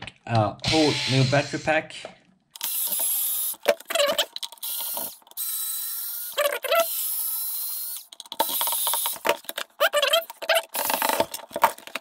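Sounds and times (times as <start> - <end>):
electric screwdriver motor whine: 4.6 - 9.2.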